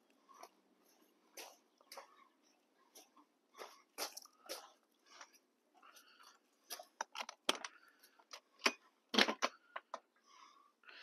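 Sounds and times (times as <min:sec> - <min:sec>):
footsteps crunching on gravel: 0:00.4 - 0:02.2, 0:02.9 - 0:05.4.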